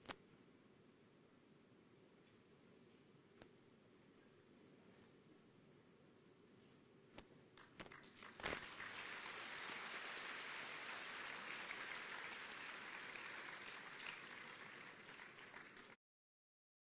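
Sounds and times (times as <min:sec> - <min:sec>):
audience applauding: 0:07.6 - 0:16.0.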